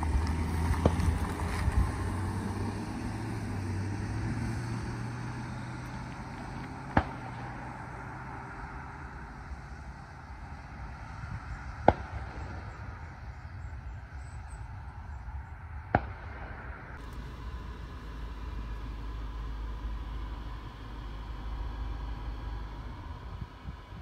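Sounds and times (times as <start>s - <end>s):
car engine driving away: 0.0s - 24.0s
low steady rumble: 0.0s - 24.0s.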